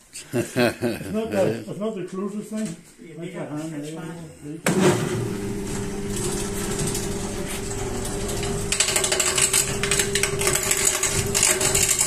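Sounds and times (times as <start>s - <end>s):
electric lathe running: 5.2s - 12.0s
turning tool cutting wood: 5.5s - 12.0s.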